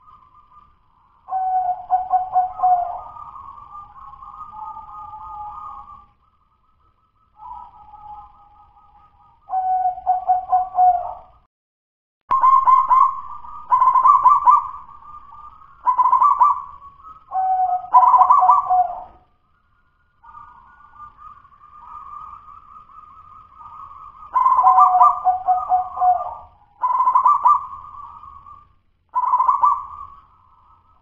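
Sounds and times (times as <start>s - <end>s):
dove cooing: 1.3s - 6.0s, 9.5s - 11.3s, 12.3s - 19.2s, 20.2s - 30.3s.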